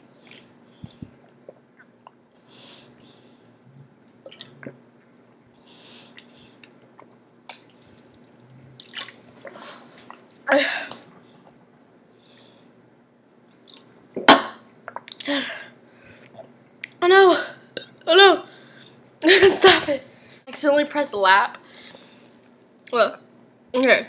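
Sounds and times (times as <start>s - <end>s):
person gulping: 0.2s - 2.4s, 4.2s - 5.4s, 6.1s - 11.0s, 13.7s - 15.3s.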